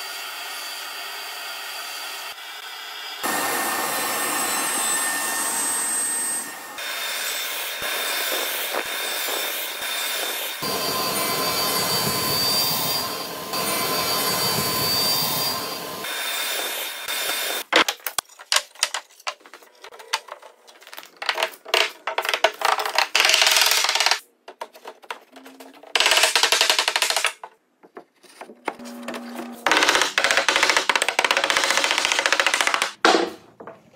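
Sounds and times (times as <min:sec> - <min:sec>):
radial arm saw whining: 0:00.0 - 0:17.7
wooden mallet tapping boards: 0:29.9 - 0:33.8.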